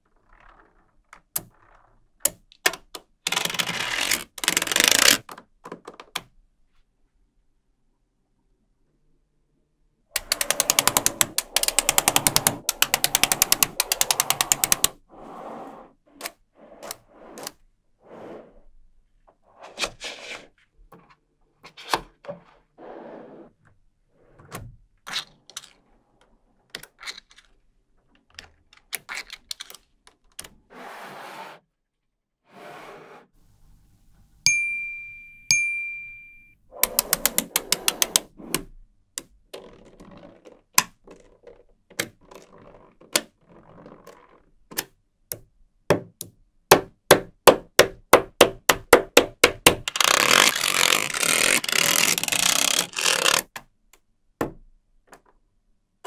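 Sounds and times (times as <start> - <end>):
magnetic balls clicking together: 10.2 - 15.0
sliding and scraping: 10.3 - 18.7, 49.9 - 53.5
bell-like ding: 34.5 - 36.6.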